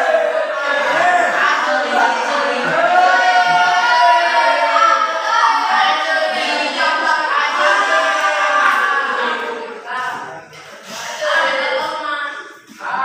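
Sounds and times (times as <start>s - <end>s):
group of voices singing: 0.0s - 13.0s.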